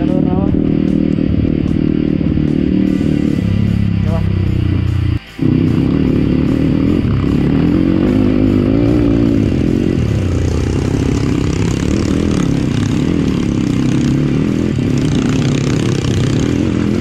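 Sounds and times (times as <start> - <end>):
dirt bike engine running: 0.0 - 17.0.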